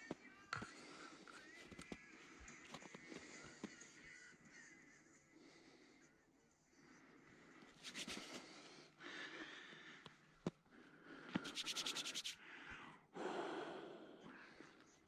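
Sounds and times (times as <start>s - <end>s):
breathing: 0.6s - 1.6s, 5.4s - 15.0s
hands rubbing together: 7.8s - 8.6s, 11.3s - 12.4s.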